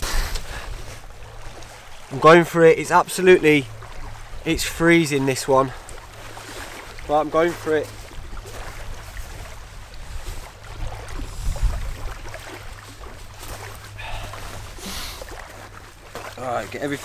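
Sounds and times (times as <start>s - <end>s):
waves lapping on gravel shore: 0.0s - 17.0s
wind buffeting microphone: 7.9s - 15.5s.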